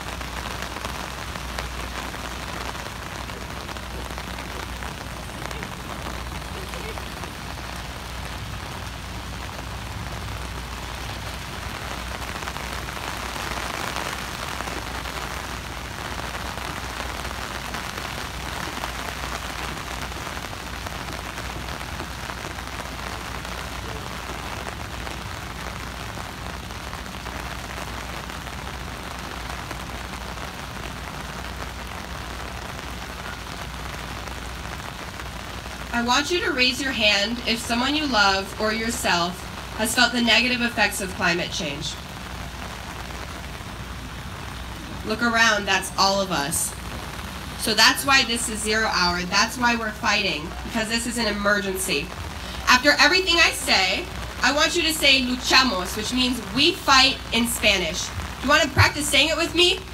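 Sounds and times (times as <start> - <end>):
rain on umbrellas: 0.0 - 59.9.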